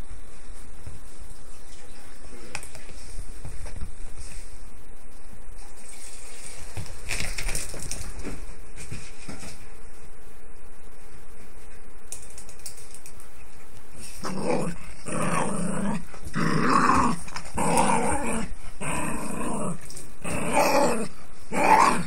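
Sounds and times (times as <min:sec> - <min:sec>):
dog play-growling: 0:14.1 - 0:22.0.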